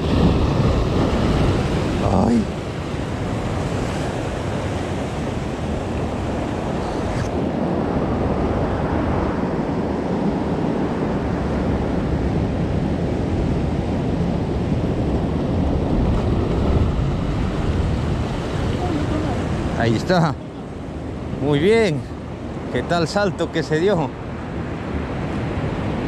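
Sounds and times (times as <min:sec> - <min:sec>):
surf breaking against rocks: 0:00.0 - 0:07.4.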